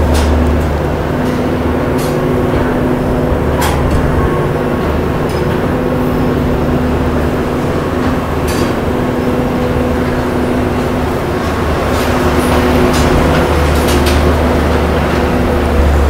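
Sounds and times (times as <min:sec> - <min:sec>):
ventilation fans humming: 0:00.0 - 0:16.0.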